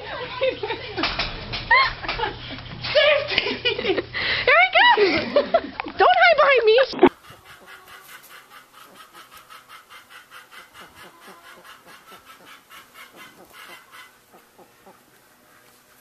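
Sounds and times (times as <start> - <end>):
farmyard fowl calls: 6.3 - 16.0.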